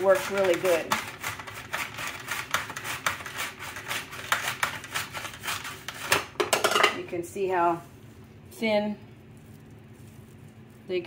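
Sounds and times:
onion rasping on mandoline slicer: 0.0s - 6.1s.

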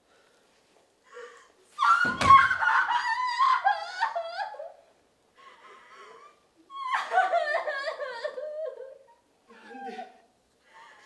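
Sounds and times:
woman sobbing and wailing: 1.2s - 4.9s, 5.5s - 10.3s.

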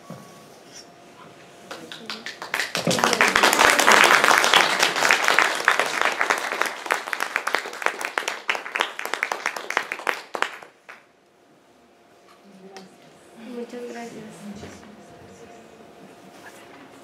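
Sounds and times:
audience applauding: 1.7s - 11.1s.

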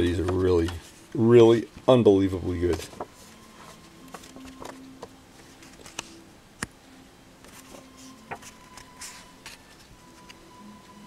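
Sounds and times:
faint steady hum: 0.0s - 11.0s
photographs clicking and rustling: 4.0s - 6.2s.

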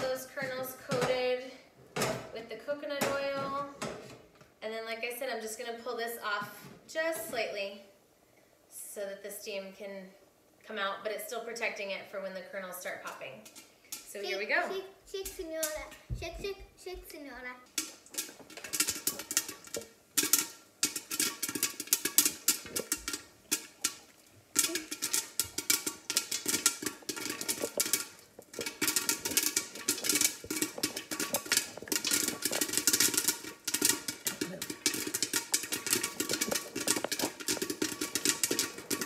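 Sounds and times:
popcorn popping in covered skillet: 0.0s - 4.5s, 12.8s - 39.0s.

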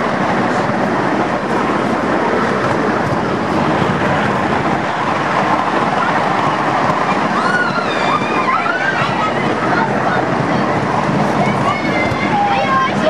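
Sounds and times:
miniature train wheels on rails: 0.0s - 13.0s.

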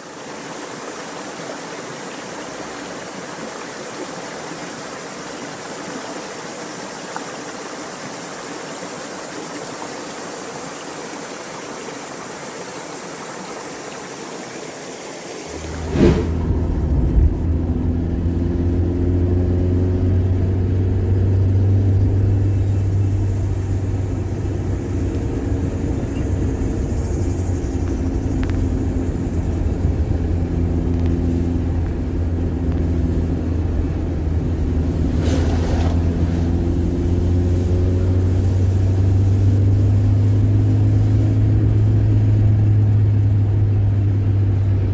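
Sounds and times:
road noise rumble: 14.5s - 44.9s
brief rush of noise: 15.5s - 17.5s
car engine hum: 15.5s - 44.9s.

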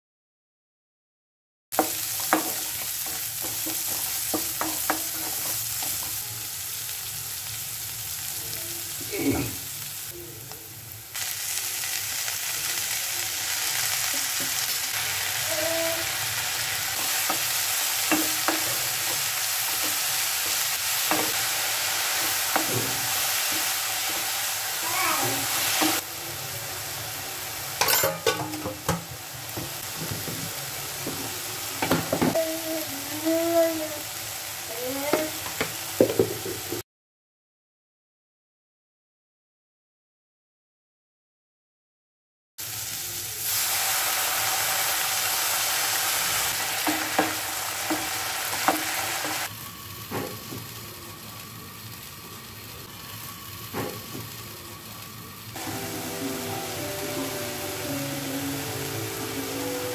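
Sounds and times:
food sizzling in hot oil: 1.7s - 36.8s, 42.6s - 59.9s
spoon scraping and tapping pan: 1.8s - 6.1s, 27.8s - 29.1s.

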